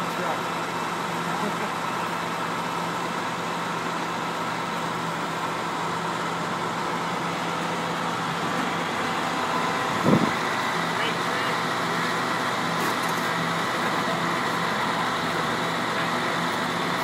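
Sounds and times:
truck engine idling: 0:00.0 - 0:17.0.

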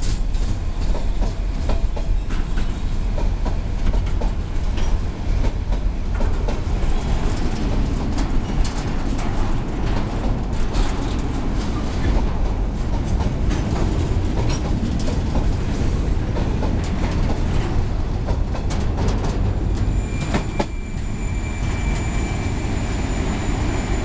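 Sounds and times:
freight train rumbling past: 0:00.0 - 0:24.0
wheels clicking over rail joints: 0:00.1 - 0:20.7
high wheel squeal: 0:19.7 - 0:24.0.

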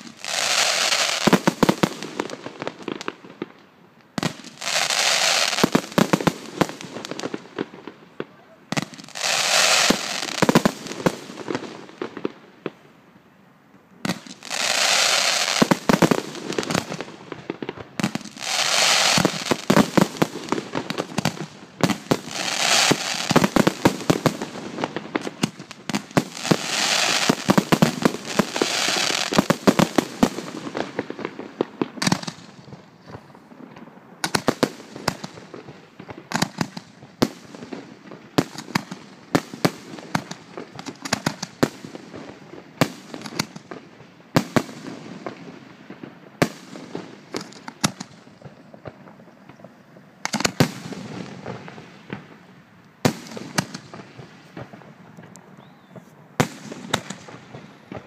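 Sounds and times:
hissing crackle of fireworks: 0:00.0 - 0:58.0
firework bangs: 0:14.0 - 0:58.0.

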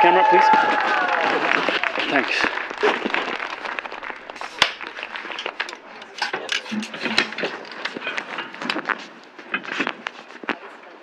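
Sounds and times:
voices chattering: 0:01.6 - 0:08.4.

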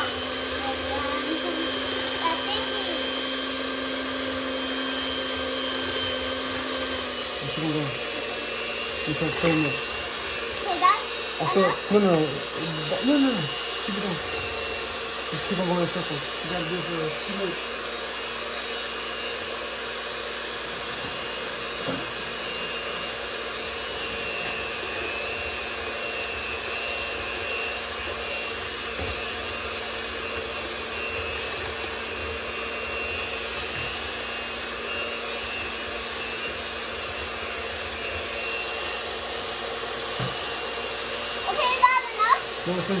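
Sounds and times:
electric hand mixer whirring: 0:00.0 - 0:43.0.

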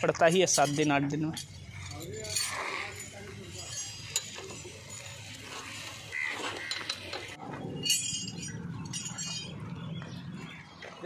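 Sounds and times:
hand tools clinking on metal: 0:00.0 - 0:09.8
high ringing clinks: 0:00.5 - 0:05.5, 0:07.7 - 0:09.8.

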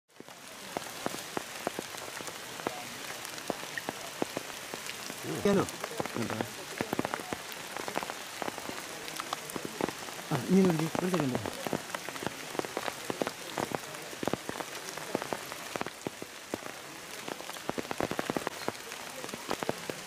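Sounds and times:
rain on foliage: 0:00.1 - 0:20.0.

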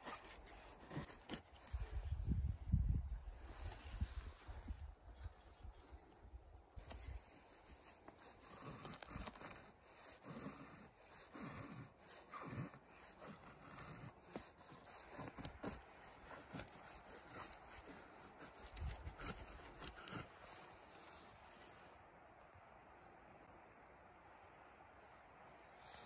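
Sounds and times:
knife scraping wooden stick: 0:00.0 - 0:02.1, 0:06.8 - 0:21.2.

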